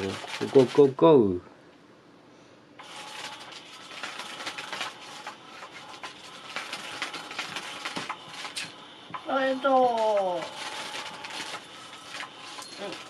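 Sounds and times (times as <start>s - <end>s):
small motor whirring: 2.8s - 13.0s.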